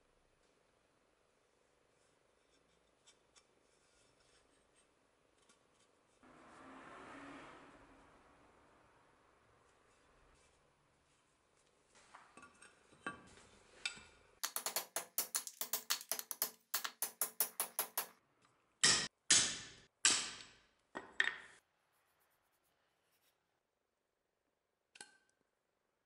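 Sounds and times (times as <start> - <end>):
hatchet knocking on metal: 14.4 - 18.1.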